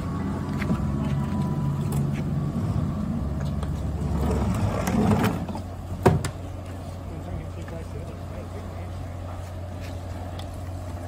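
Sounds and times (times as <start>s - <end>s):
boat engine droning: 0.0s - 11.0s.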